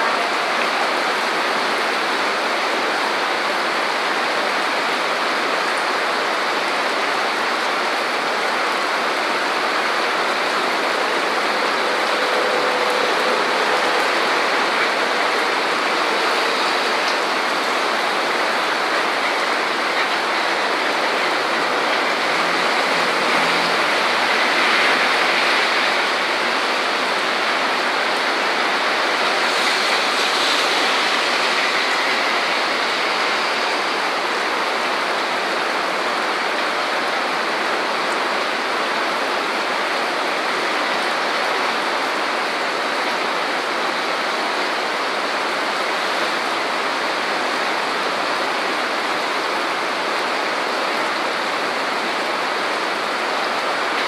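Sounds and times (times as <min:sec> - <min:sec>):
heavy rain on street: 0:00.0 - 0:54.0
car tyres swishing through water: 0:29.3 - 0:33.6.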